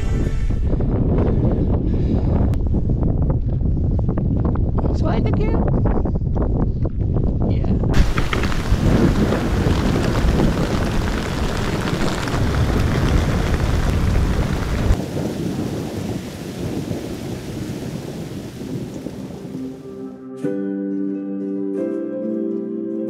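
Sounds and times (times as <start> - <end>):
deep rumble: 0.0 - 19.9
falling water hiss: 8.0 - 19.9.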